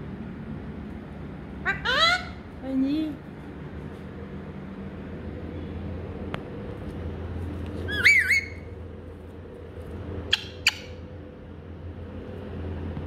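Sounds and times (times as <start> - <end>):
parakeet short sharp calls: 1.6 - 2.4
parakeet squawking: 1.6 - 2.4, 7.9 - 8.7, 10.3 - 11.0.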